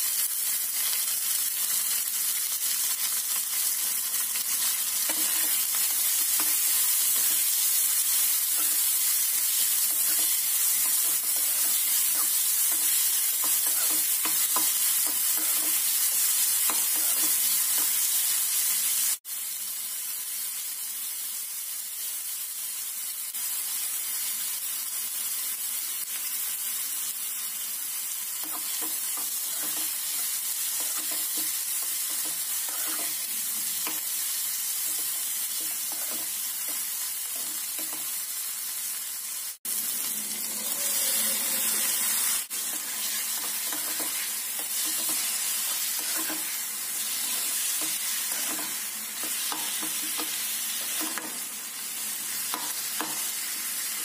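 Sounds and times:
food sizzling in oil: 0.0s - 54.0s
spatula scraping a pan: 4.6s - 18.2s, 28.4s - 38.2s, 40.5s - 51.4s.

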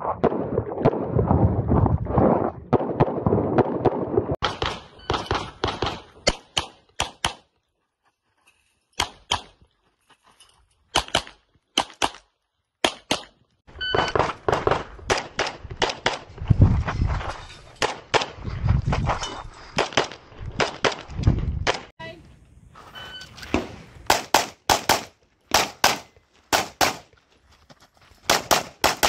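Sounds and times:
pistol shots: 24.1s - 27.0s, 28.3s - 29.0s.

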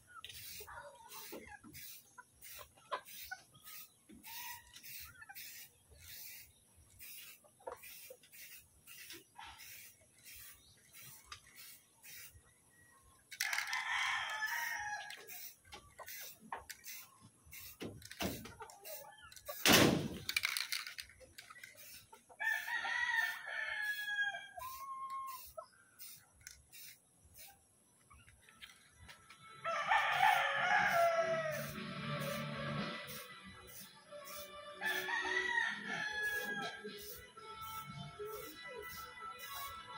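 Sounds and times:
rooster crowing: 13.4s - 15.2s, 22.4s - 25.4s, 29.6s - 32.3s, 34.8s - 37.1s.

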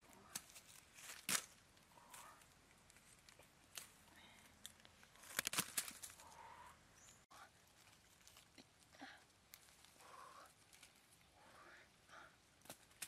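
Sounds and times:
leafy branches rustling: 0.0s - 11.5s
fruit snapping off stems: 0.3s - 2.2s, 4.6s - 6.3s.

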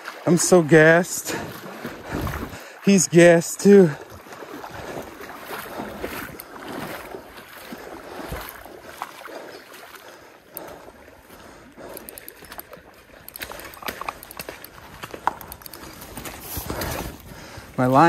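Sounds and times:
creek water splashing: 0.0s - 18.0s
wind on microphone: 2.0s - 2.6s
footsteps on gravel: 11.4s - 18.0s.

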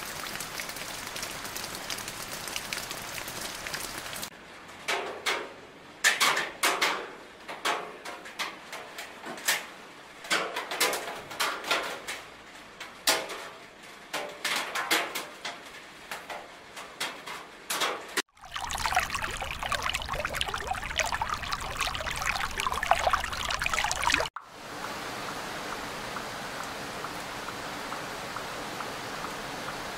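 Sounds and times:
rain splashing into water: 0.0s - 4.3s, 18.3s - 29.9s
raindrops dripping: 0.0s - 4.3s, 18.3s - 29.9s.

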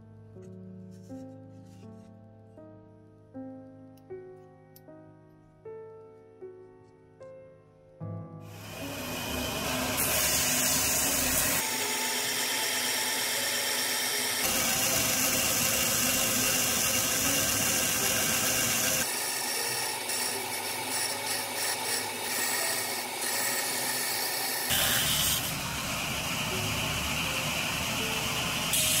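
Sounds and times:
belt grinder grinding steel: 8.5s - 29.0s.

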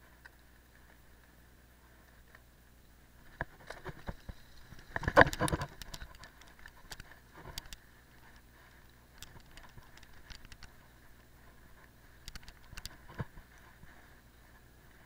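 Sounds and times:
bike rattling over bump: 3.4s - 7.6s.

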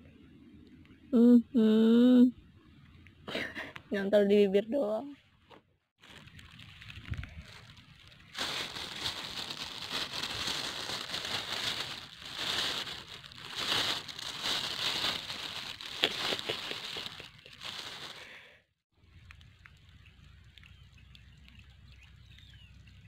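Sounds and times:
plastic bag crinkling: 6.0s - 18.5s.

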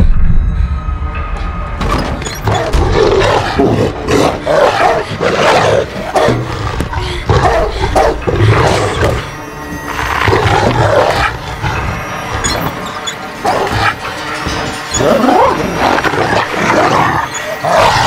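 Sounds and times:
low rumble: 0.0s - 2.2s
dog snarling and barking: 2.7s - 6.6s.

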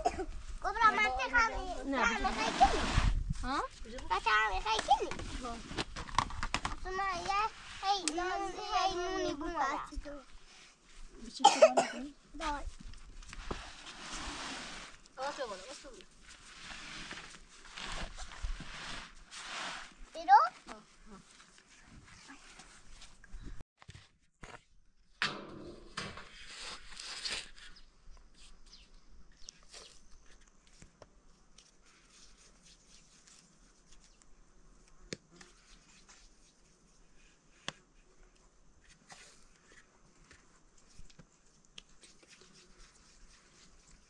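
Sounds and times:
rustling scrape: 1.8s - 6.0s, 7.2s - 9.0s, 12.4s - 23.2s, 25.2s - 28.6s.

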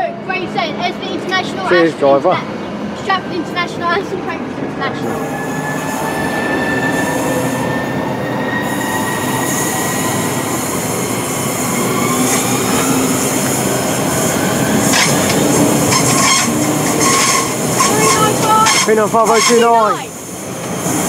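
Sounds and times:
wheel-on-rail noise: 0.0s - 21.0s
electric train whine rising: 1.6s - 21.0s.

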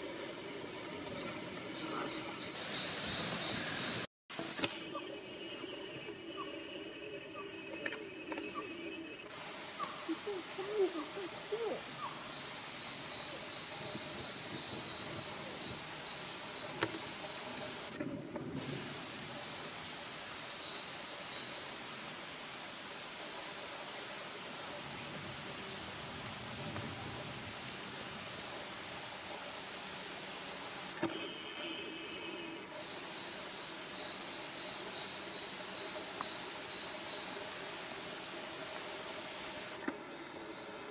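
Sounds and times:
lower chirping: 0.0s - 22.1s
steady hiss: 0.0s - 40.9s.

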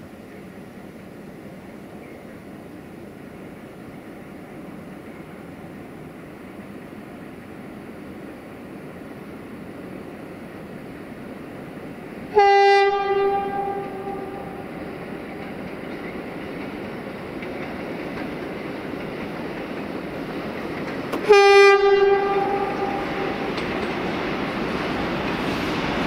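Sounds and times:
freight train running: 0.0s - 26.0s
locomotive horn blasts: 12.3s - 14.8s, 21.2s - 23.5s.

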